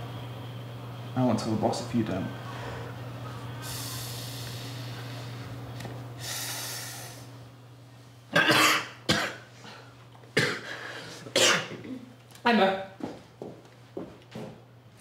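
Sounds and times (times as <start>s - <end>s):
low electrical hum: 0.0s - 15.0s
breathy inhaling: 2.4s - 5.5s, 6.2s - 7.4s, 10.6s - 11.3s
woman coughing: 8.3s - 9.5s, 10.4s - 10.7s, 11.3s - 12.1s.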